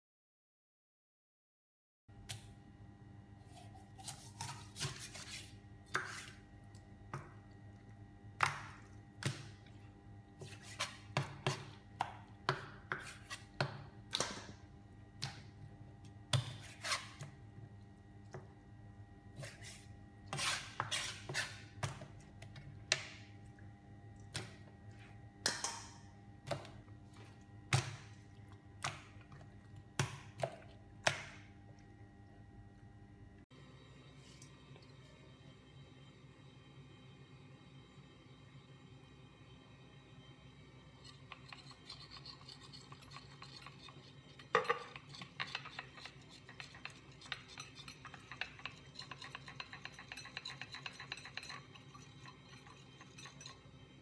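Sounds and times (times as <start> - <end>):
knife chopping on cutting board: 10.4 - 14.5.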